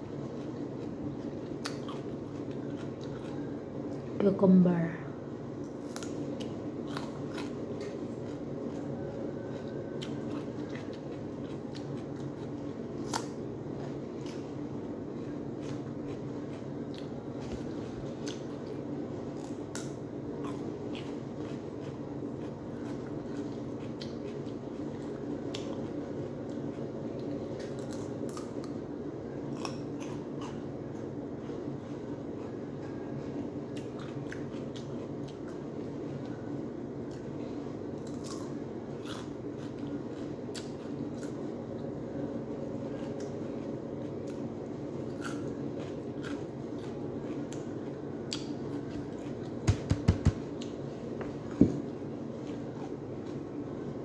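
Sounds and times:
cucumber crunching being chewed: 0.0 - 3.5, 5.6 - 14.5, 15.2 - 28.8, 29.5 - 30.7, 33.7 - 36.4, 38.0 - 41.9, 42.9 - 49.6
steady low hum: 0.0 - 54.0.

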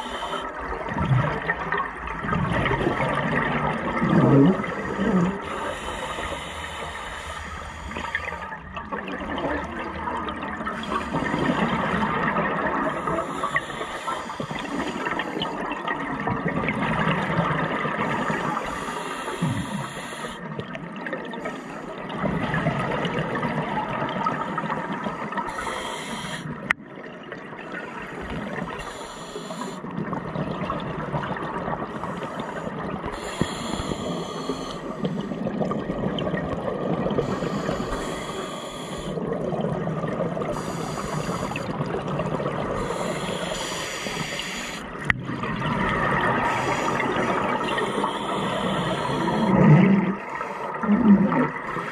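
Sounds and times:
hissing regulator inhalations: 0.0 - 0.6, 4.7 - 8.5, 12.8 - 15.6, 18.0 - 20.5, 24.3 - 26.6, 28.0 - 29.9, 31.8 - 35.4, 37.2 - 39.2, 40.4 - 41.8, 42.7 - 45.1, 46.2 - 50.8
exhaled bubbles gushing: 0.0 - 5.9, 7.9 - 29.0, 29.6 - 51.9.

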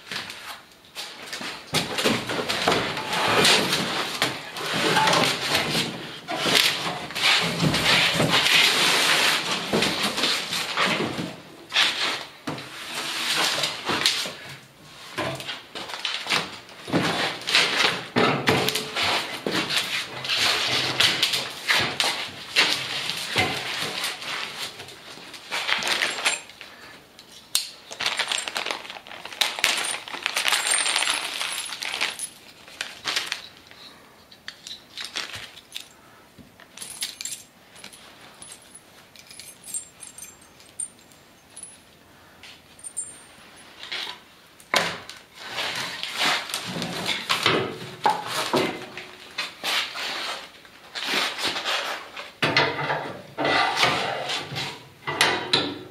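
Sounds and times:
metal bolts and nuts clinking: 25.6 - 26.6, 29.7 - 32.6, 36.6 - 41.9, 42.7 - 44.2
knocks and scrapes of moving boards: 51.0 - 55.9.

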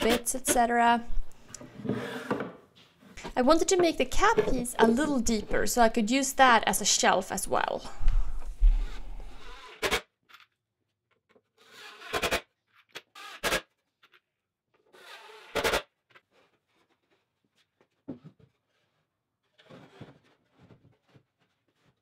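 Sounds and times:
plywood knocks and scrapes: 1.6 - 5.0.

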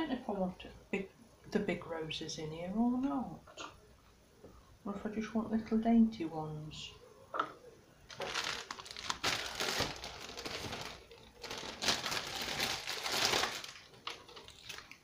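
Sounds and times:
plastic wrapping crinkling: 8.1 - 15.0.

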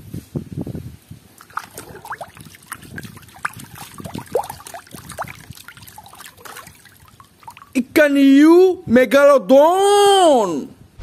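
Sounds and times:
water plops and gurgles: 1.4 - 7.8
water sloshing in plastic tub: 1.4 - 7.8.

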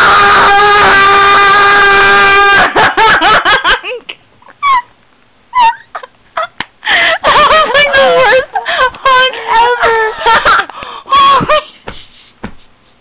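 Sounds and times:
woman giggling: 3.4 - 4.9, 5.5 - 12.7.

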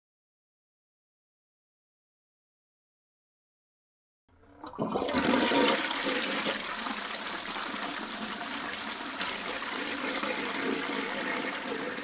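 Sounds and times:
toilet flushing: 4.4 - 12.0.

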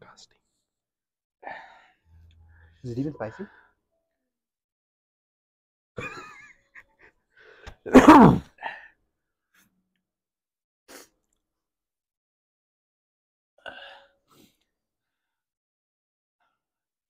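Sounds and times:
person breathing: 7.4 - 7.8
person sneezing: 7.9 - 8.6.

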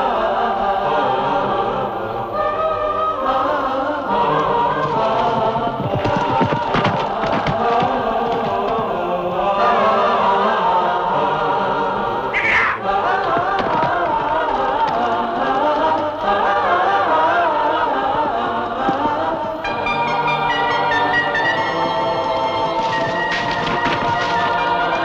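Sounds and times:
choral singing: 0.0 - 25.0
brief high-pitched sound: 12.4 - 12.8.

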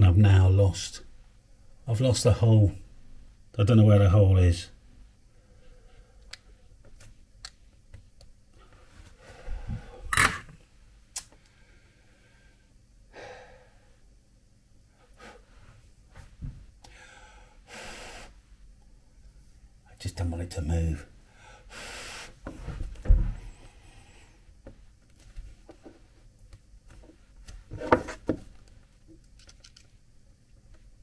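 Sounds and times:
breathy exhalations: 16.8 - 18.3.

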